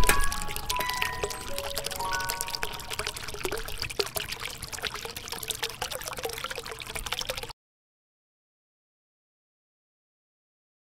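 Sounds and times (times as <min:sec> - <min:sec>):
dense trickling crackle of clicks: 0:00.0 - 0:07.5.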